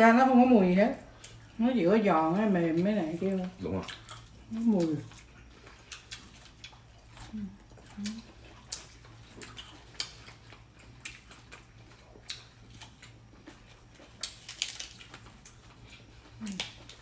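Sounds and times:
low room hum: 0:00.0 - 0:17.0
people chewing and lip smacking: 0:01.1 - 0:01.6, 0:02.7 - 0:17.0
person humming: 0:07.3 - 0:08.2.

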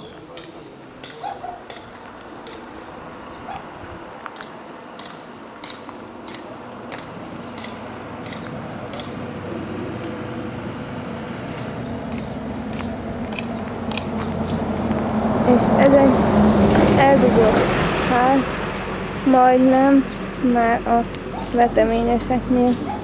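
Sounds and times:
footsteps on path: 0:11.4 - 0:15.2.

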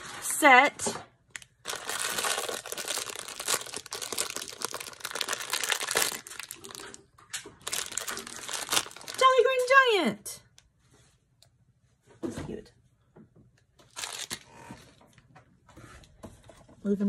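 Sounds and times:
foil bag crinkling: 0:01.3 - 0:09.8, 0:13.9 - 0:14.5.

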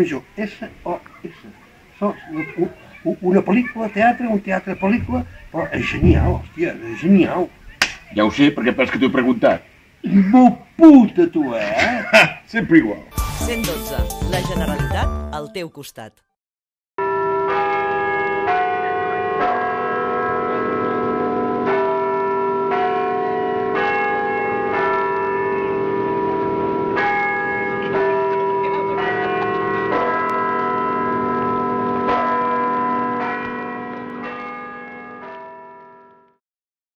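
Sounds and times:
bells ringing: 0:17.0 - 0:36.3.

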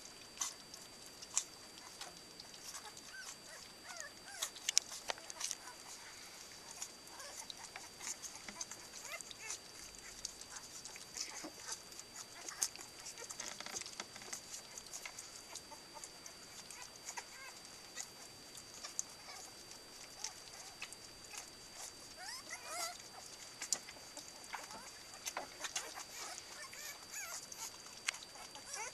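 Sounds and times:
puppies lapping and smacking: 0:00.0 - 0:28.9
puppy whining: 0:00.0 - 0:28.9
puppy squeaks: 0:21.3 - 0:23.0, 0:24.6 - 0:27.7, 0:28.4 - 0:28.9.

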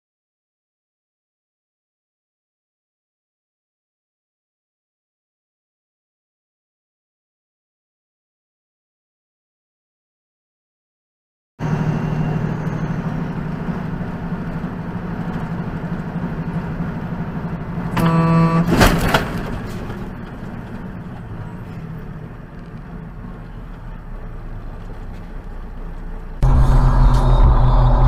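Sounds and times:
vehicle driving noise: 0:11.6 - 0:28.0
car horn: 0:17.9 - 0:19.2.

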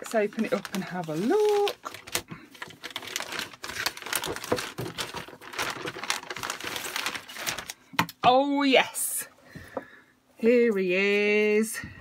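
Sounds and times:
packaging crinkling and rustling: 0:00.0 - 0:07.9.

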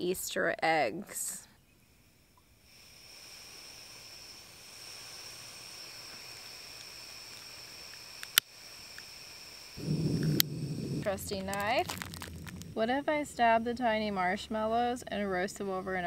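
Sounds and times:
gas hissing from stove burner: 0:02.7 - 0:11.9.

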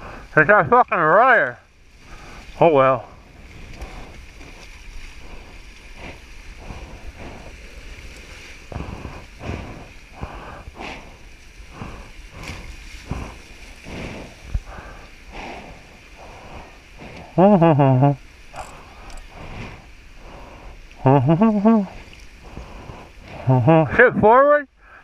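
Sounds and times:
wind noise on microphone: 0:01.7 - 0:24.0
water splashing against hulls: 0:01.9 - 0:17.4.

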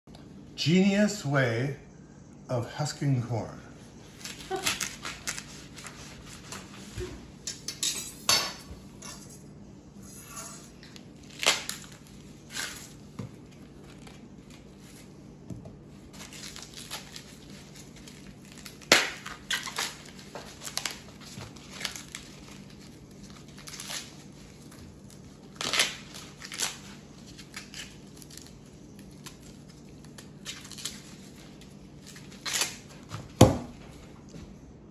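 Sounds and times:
husk snapping: 0:11.3 - 0:12.8, 0:18.6 - 0:21.0, 0:25.5 - 0:26.8, 0:32.1 - 0:32.9
corn husks tearing and rustling: 0:16.1 - 0:33.1.

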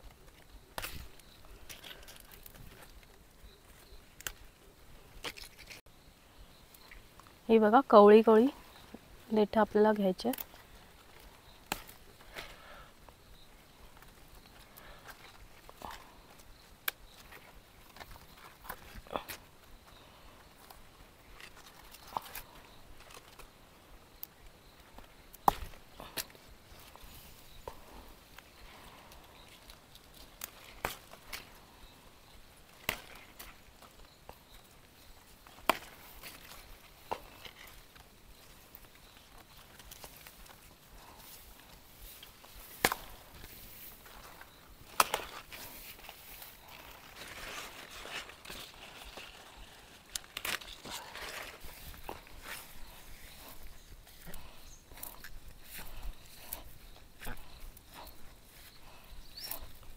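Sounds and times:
leaf stalks snapping: 0:00.2 - 0:03.2, 0:04.2 - 0:04.5, 0:09.9 - 0:12.6, 0:24.2 - 0:27.8, 0:29.1 - 0:31.6, 0:32.7 - 0:34.4, 0:35.4 - 0:38.1, 0:38.7 - 0:56.6
faint rustling: 0:35.8 - 0:59.9.

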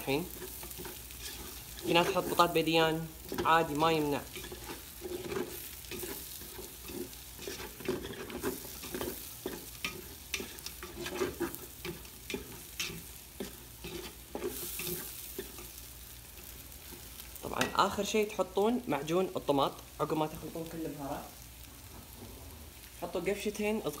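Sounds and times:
spatula scraping metal pot: 0:00.0 - 0:15.8
frying sizzle: 0:00.0 - 0:24.0.

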